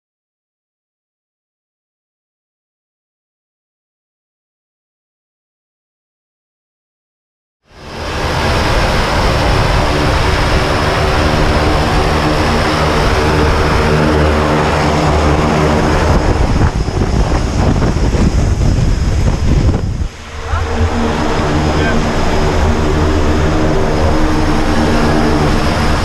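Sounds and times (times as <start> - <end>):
propeller plane engine running: 7.7 - 26.0.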